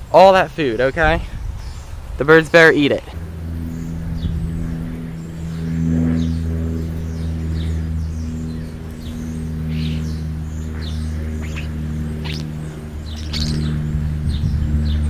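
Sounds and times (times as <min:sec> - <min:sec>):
low engine hum: 0:00.0 - 0:15.0
bird chirps: 0:03.6 - 0:15.0.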